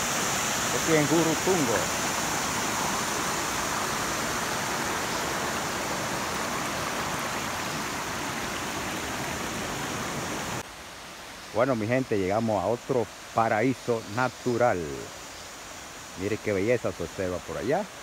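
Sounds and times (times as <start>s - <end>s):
river water rushing over rocks: 0.0s - 13.6s.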